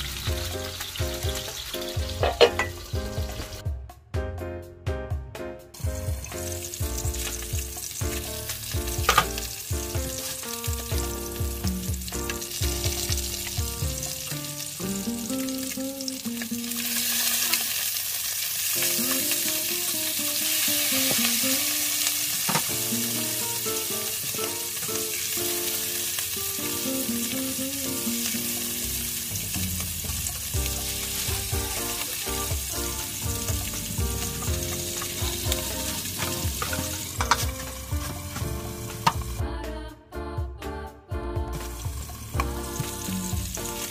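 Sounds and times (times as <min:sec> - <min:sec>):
fish sizzling in hot oil: 0:00.0 - 0:03.6, 0:05.8 - 0:39.4, 0:41.6 - 0:43.9
spatula scraping and knocking: 0:02.2 - 0:02.8, 0:36.2 - 0:39.3.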